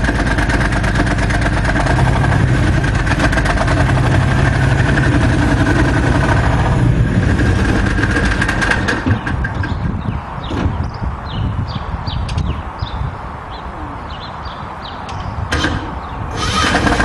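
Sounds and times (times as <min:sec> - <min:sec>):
tank engine running: 0:00.0 - 0:10.0, 0:15.5 - 0:17.0.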